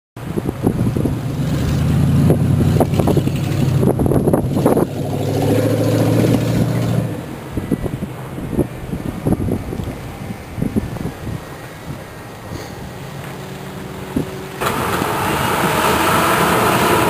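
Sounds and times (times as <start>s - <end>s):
wind buffeting microphone: 0.2s - 13.2s, 13.8s - 17.0s
passing cars engine hum: 0.4s - 17.0s.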